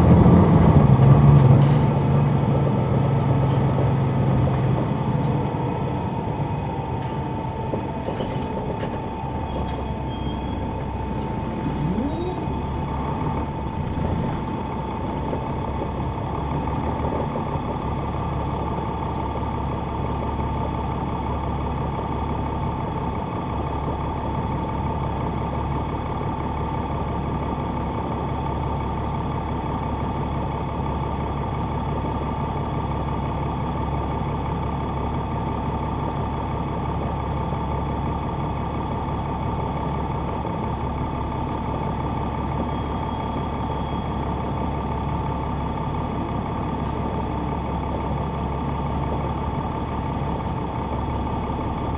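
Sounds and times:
bus diesel engine drone: 0.0s - 51.9s
high-pitched whine: 6.2s - 14.3s
faint high squeaks: 8.1s - 13.7s.

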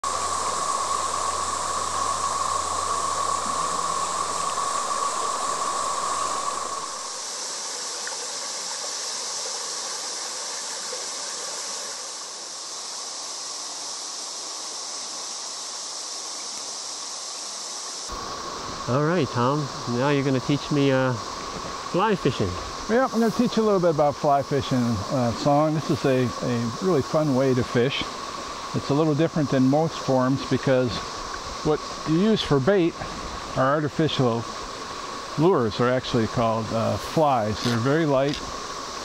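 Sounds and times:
river rushing over stones: 0.0s - 14.4s.

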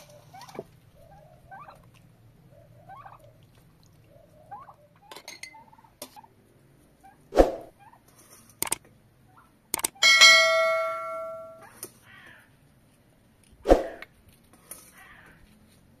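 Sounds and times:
sharp clicks: 8.6s - 8.9s, 9.7s - 10.0s
bright bell ding: 10.0s - 11.7s.

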